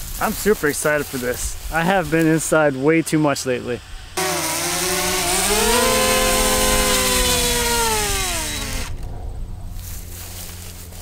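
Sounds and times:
drone propellers whining: 4.1s - 9.2s.

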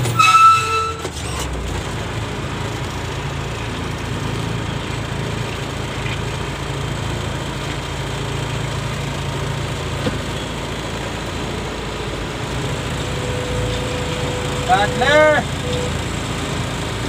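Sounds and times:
diesel engine drone: 0.0s - 17.0s.

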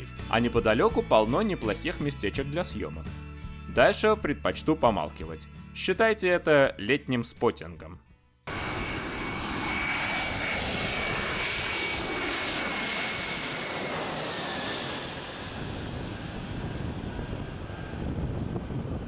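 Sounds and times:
jet airliner passing overhead: 8.5s - 19.0s.

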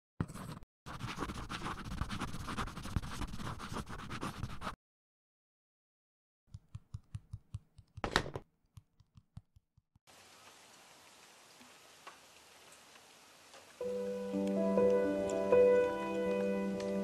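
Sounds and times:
felt pens scratching on paper: 0.2s - 4.8s.

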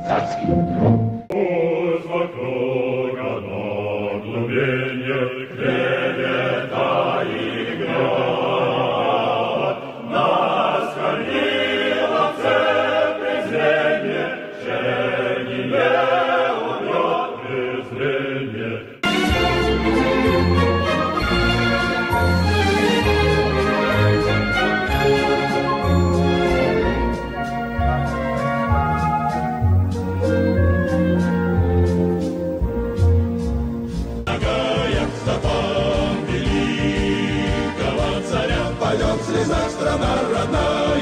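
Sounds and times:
orchestral music: 0.0s - 2.7s, 19.0s - 41.0s
choir singing: 0.0s - 41.0s.

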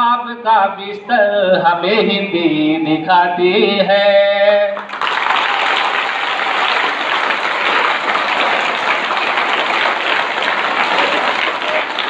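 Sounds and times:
man singing: 0.0s - 4.9s
crowd of children applauding: 4.8s - 12.0s.

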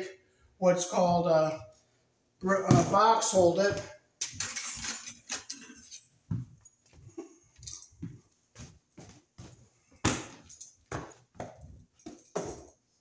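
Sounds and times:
footsteps: 2.4s - 4.8s, 5.8s - 12.8s
sheet-metal boxes knocking and clattering: 10.0s - 12.8s.

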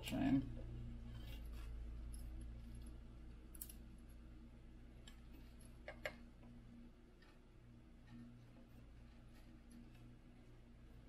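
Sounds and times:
steady low hum: 0.0s - 11.0s
faint clicks and taps of wires: 5.0s - 10.6s.

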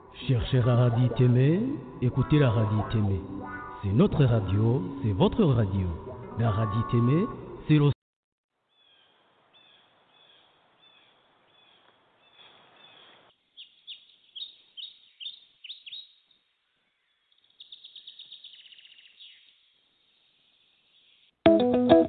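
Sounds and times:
songbird chirping and trilling: 8.7s - 21.4s.

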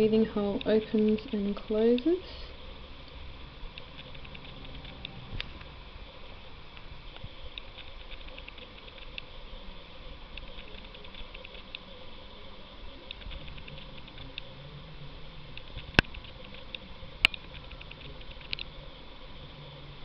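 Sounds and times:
sharp clicks: 0.6s - 2.1s, 3.0s - 5.7s
snail rasping crackly clicking: 6.7s - 9.4s, 10.3s - 11.9s, 13.0s - 14.5s, 15.5s - 18.8s.

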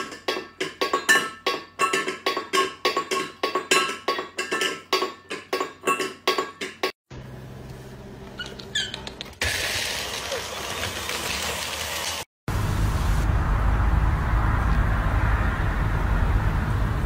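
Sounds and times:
metal bowl clanking on floor: 0.0s - 6.9s.

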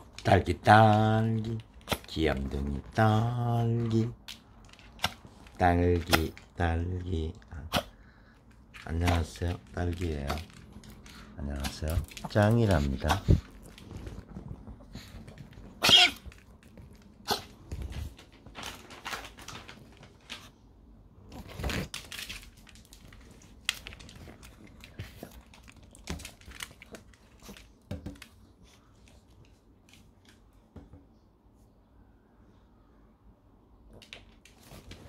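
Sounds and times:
dogs moving clicking and rustling: 8.4s - 20.5s, 21.4s - 30.4s.

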